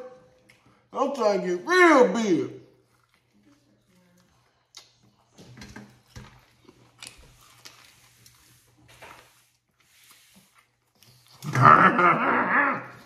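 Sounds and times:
mouth clicks and smacks chewing: 2.8s - 5.5s.

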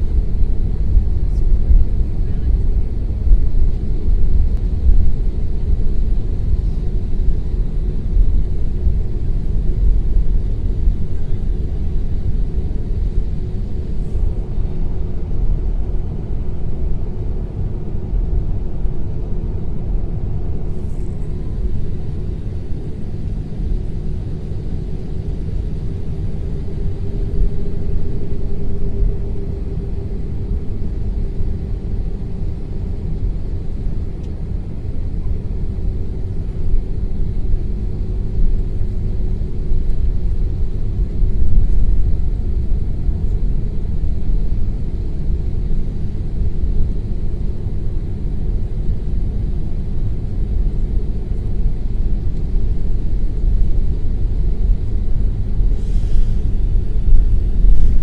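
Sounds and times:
airliner cabin rumble: 0.0s - 58.0s
faint steady hum: 0.0s - 58.0s.

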